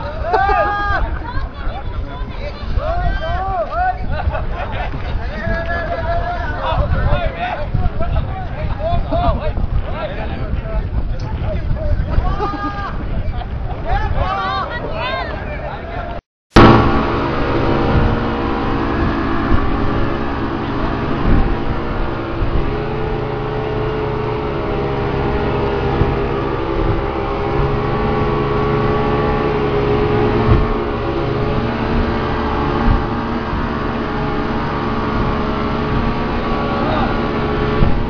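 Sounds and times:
wind: 0.0s - 38.0s
outboard motor running: 16.5s - 38.0s
rushing water: 16.6s - 38.0s.

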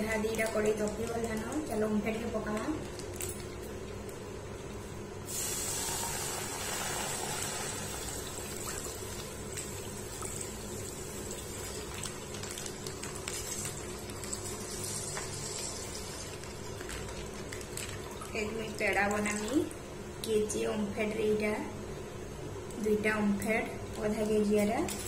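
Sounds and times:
milk pouring into a pan: 5.3s - 18.4s.

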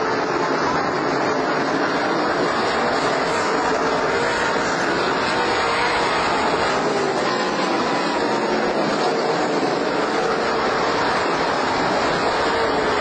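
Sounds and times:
race car engines droning: 0.0s - 13.0s.

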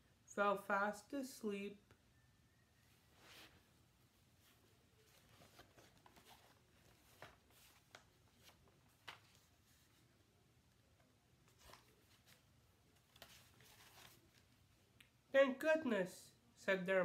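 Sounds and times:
faint paper rustles: 3.1s - 10.3s, 11.4s - 14.8s.

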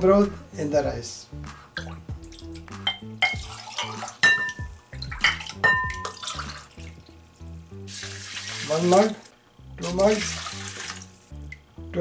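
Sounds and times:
ceramic cup clinking: 2.8s - 6.6s
broth pouring and splashing: 3.4s - 4.2s, 4.9s - 11.3s.

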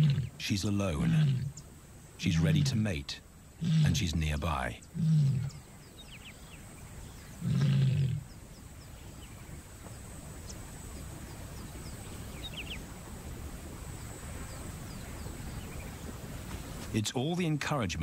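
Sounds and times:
lioness calling: 0.0s - 1.6s, 2.2s - 5.7s, 7.2s - 8.3s.

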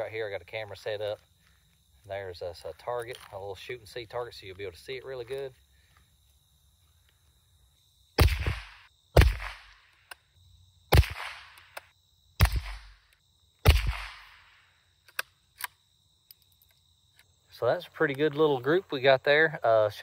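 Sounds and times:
rifle shots with echo: 8.2s - 9.8s, 10.9s - 11.8s, 12.4s - 13.0s, 13.6s - 14.6s.

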